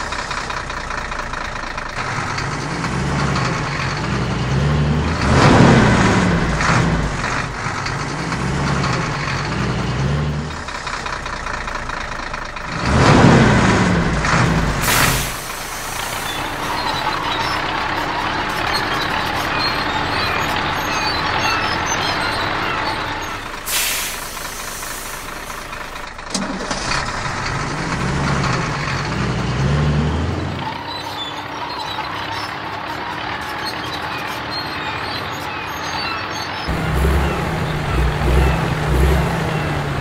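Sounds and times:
truck engine rumble: 0.0 - 40.0
air brake hissing: 14.8 - 16.9, 23.6 - 25.7.

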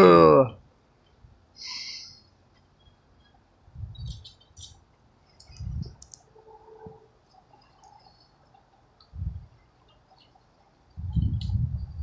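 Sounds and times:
soft low thumps: 3.7 - 4.6, 5.5 - 6.0
faint clicks: 5.4 - 6.3.

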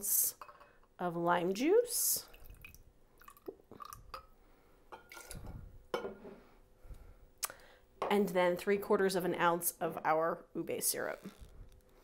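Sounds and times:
faint liquid pouring: 2.0 - 4.4, 5.0 - 5.7.

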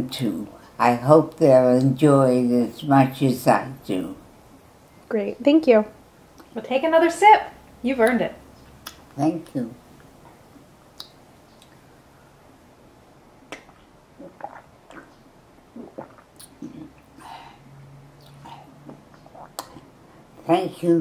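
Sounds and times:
lip smacks and mouth clicks: 6.3 - 6.6, 8.0 - 9.2, 10.9 - 11.8, 13.5 - 17.1, 18.2 - 19.9
woman sipping and swallowing: 13.5 - 17.1, 18.2 - 19.9.

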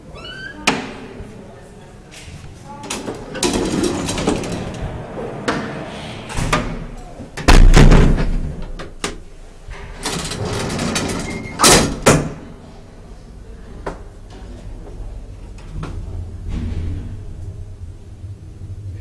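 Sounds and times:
elevator doors clattering: 2.8 - 12.5.

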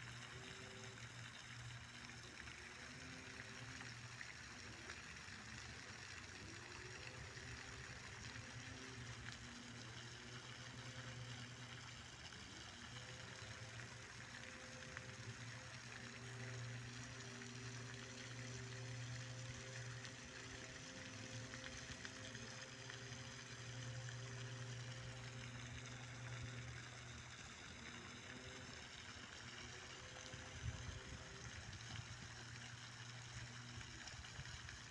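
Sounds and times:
fountain water rushing: 0.0 - 34.9
low steady hum: 0.0 - 34.9.

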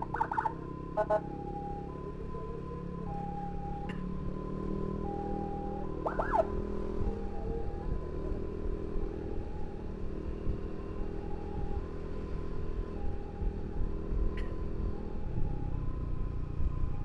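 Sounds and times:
two-tone emergency siren: 0.0 - 17.0
wind rumble: 5.1 - 17.0.

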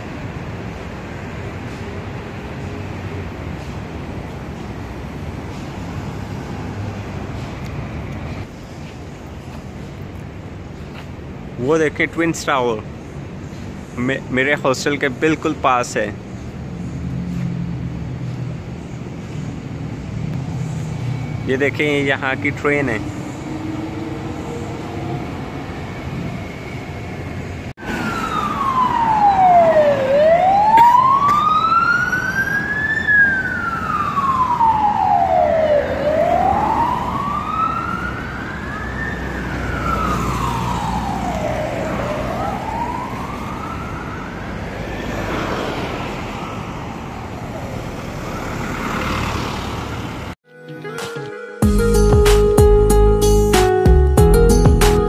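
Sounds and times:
city traffic noise: 0.0 - 55.0
emergency siren wailing: 21.0 - 27.1, 27.8 - 50.0.

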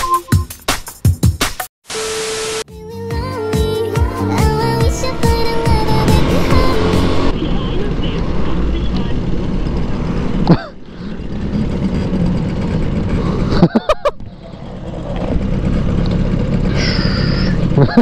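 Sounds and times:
motorcycle engine: 3.2 - 18.0
motorcycle engine revving: 3.8 - 18.0.

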